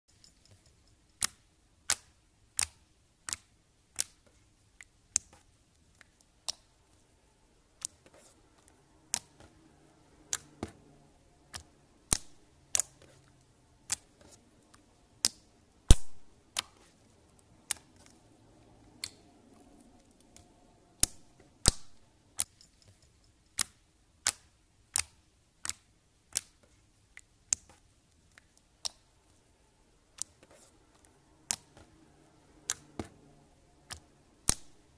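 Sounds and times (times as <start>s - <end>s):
slime clicking pops: 1.2s - 4.2s, 15.2s - 16.7s, 23.6s - 26.6s, 33.9s - 34.7s.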